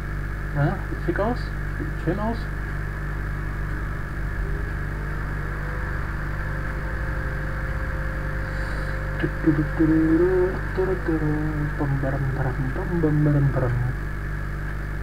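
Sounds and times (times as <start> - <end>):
electrical mains hum: 0.0 - 15.0
microphone hiss: 0.0 - 15.0
man humming: 8.4 - 14.0.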